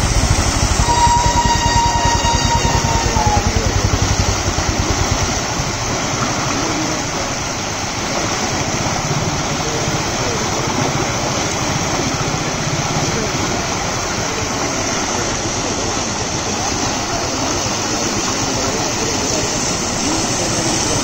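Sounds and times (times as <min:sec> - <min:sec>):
low throbbing: 0:00.0 - 0:07.6
floodwater rushing: 0:00.0 - 0:21.0.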